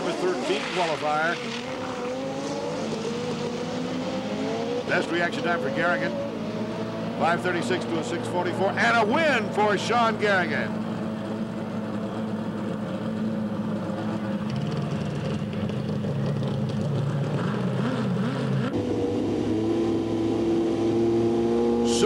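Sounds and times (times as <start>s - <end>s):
sport bike engine revving: 0.0s - 10.7s, 17.3s - 22.0s
motorcycle engine drone: 0.0s - 22.0s.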